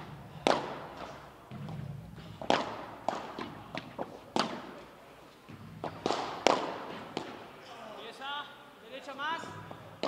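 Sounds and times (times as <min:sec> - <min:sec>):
racket striking ball: 0:00.0 - 0:04.9, 0:05.5 - 0:07.5.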